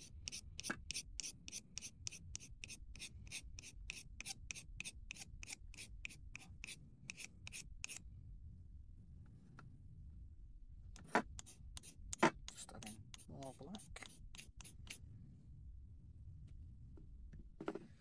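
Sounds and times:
chalk scraping on a blade: 0.0s - 8.0s, 11.0s - 15.0s.

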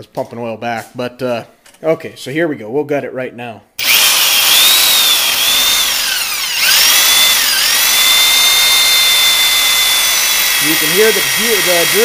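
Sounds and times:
electric drill whining under load: 3.8s - 12.0s.

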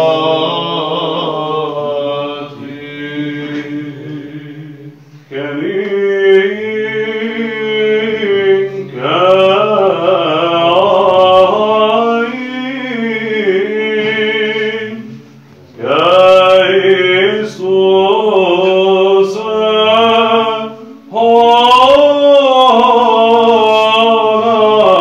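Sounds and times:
low held vocal drone: 0.0s - 25.0s
monks chanting a melody: 0.0s - 25.0s.

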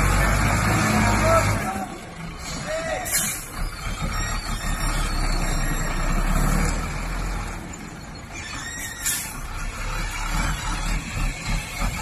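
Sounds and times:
diesel truck engine running: 0.0s - 12.0s
air brakes hissing: 2.4s - 3.5s, 8.6s - 9.4s.

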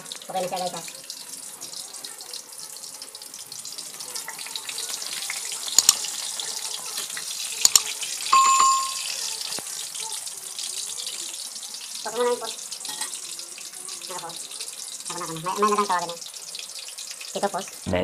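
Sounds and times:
fish deep-frying in oil: 0.0s - 17.9s
bell-like ding: 8.3s - 9.2s.

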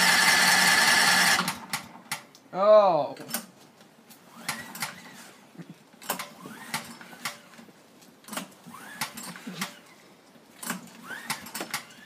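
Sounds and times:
lawnmower engine cranking: 0.0s - 2.2s, 6.0s - 7.6s, 8.2s - 9.9s, 10.6s - 12.0s.

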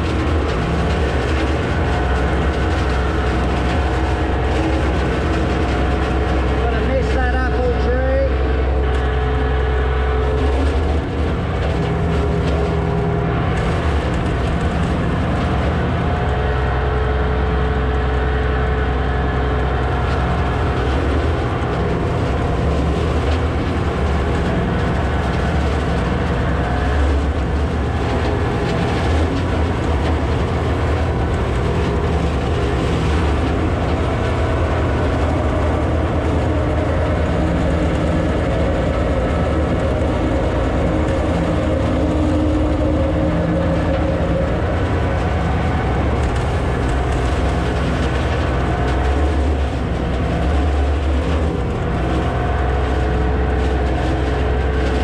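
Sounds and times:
tractor diesel engine running: 0.0s - 55.0s
branches snapping and crackling: 18.9s - 55.0s.

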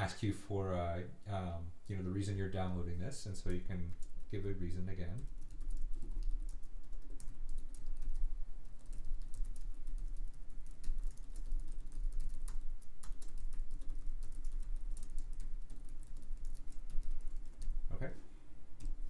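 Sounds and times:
computer keyboard typing: 5.1s - 17.9s, 18.8s - 19.0s.

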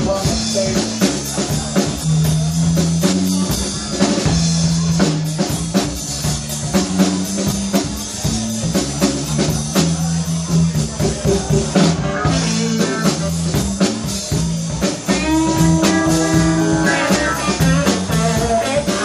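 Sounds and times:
blues band playing: 0.0s - 19.0s
drum kit beat: 0.0s - 19.0s
electric bass: 0.0s - 19.0s
electric guitar: 10.8s - 19.0s.

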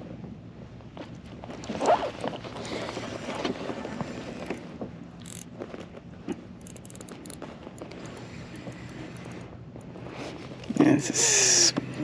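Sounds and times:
fishing reel cranking: 5.2s - 5.5s, 6.6s - 9.4s.

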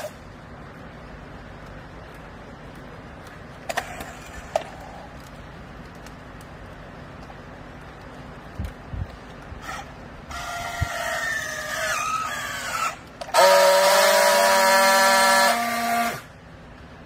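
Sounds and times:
strapping tool welding buzz: 13.2s - 16.3s.

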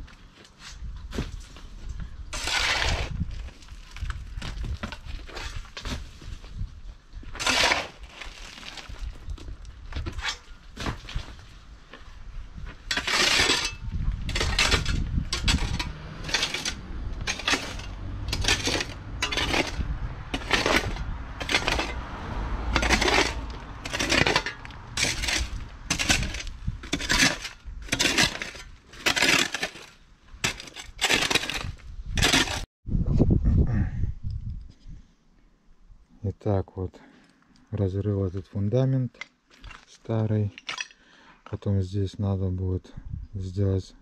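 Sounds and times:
shovel scraping into stony soil: 0.5s - 6.6s, 7.3s - 11.7s, 12.6s - 22.0s, 22.7s - 32.7s.

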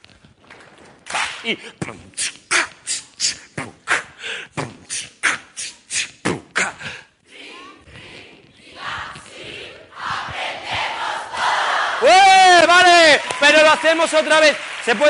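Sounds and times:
group beatboxing: 1.1s - 11.6s.

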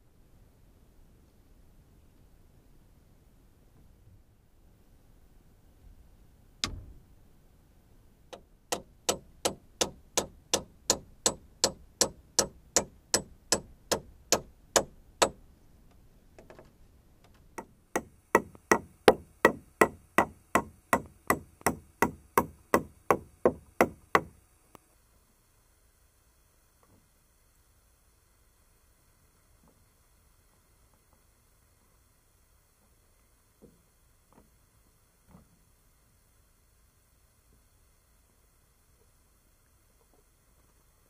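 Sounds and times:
hammering on wood: 8.3s - 15.4s, 17.6s - 24.3s.

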